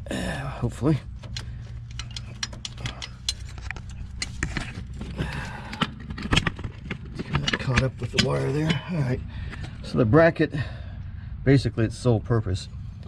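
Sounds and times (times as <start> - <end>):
metal bracket clicking and clinking: 1.1 - 8.8.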